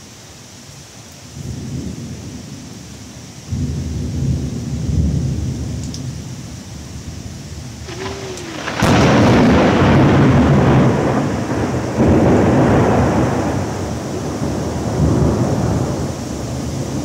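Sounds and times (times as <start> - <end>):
falling rain: 0.0 - 17.0
thunder clap and rumble: 7.1 - 17.0.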